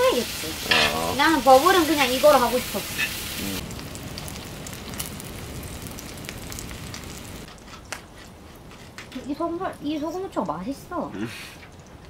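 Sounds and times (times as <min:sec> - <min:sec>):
meat sizzling on griddle: 0:00.0 - 0:07.5.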